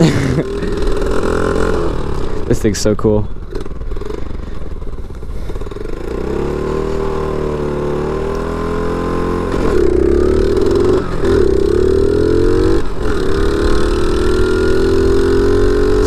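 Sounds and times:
pit bike engine accelerating: 0.0s - 16.0s.

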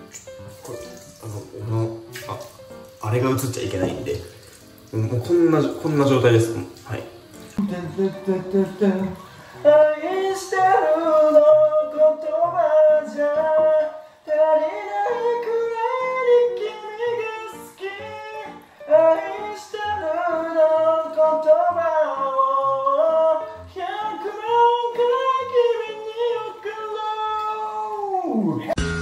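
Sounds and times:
soft low beat: 7.6s - 9.1s
man singing with echo: 7.6s - 28.8s.

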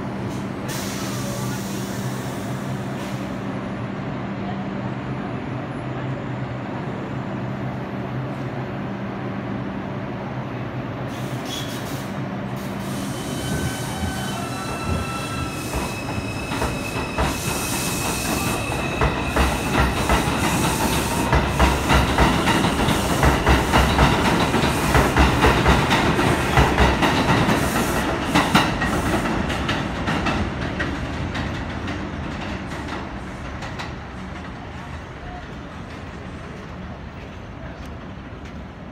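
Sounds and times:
subway train humming: 0.0s - 38.9s
train propulsion whining: 11.8s - 34.2s.

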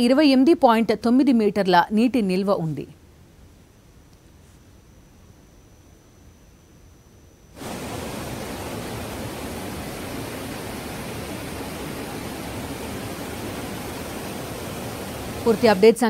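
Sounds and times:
floodwater rushing: 7.6s - 15.9s.

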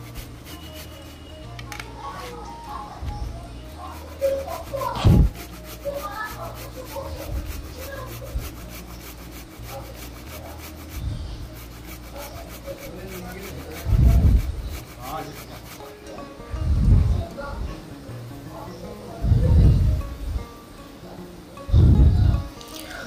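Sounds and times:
grater and plate scraping: 0.0s - 2.5s, 3.7s - 16.1s.

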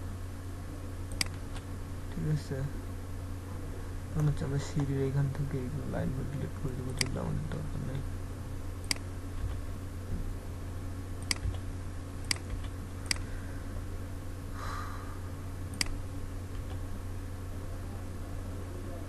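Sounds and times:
steady low hum: 0.0s - 19.0s
mouse and keyboard clicks: 1.1s - 1.6s, 6.9s - 7.2s, 11.2s - 11.6s, 12.2s - 13.2s.

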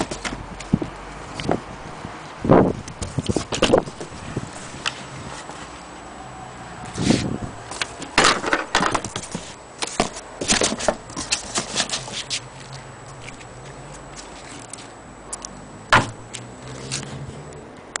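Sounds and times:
loud knock: 15.9s - 16.2s.

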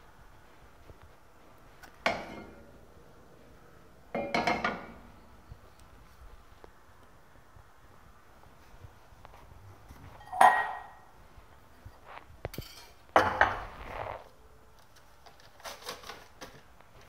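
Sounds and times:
metal kitchenware clanking: 2.0s - 2.7s, 4.1s - 5.0s, 10.2s - 11.0s, 12.5s - 13.6s.

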